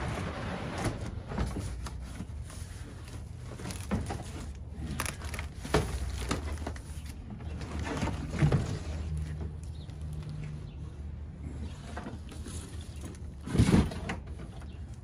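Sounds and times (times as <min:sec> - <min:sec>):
boxes knocking and scraping: 0:00.0 - 0:10.2, 0:11.6 - 0:15.0
cardboard rustling: 0:00.0 - 0:10.2.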